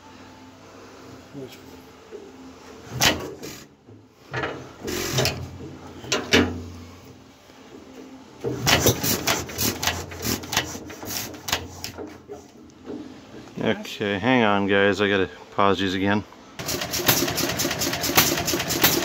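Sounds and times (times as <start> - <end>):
metallic clacks and scrapes: 2.9 - 7.2, 8.4 - 13.6.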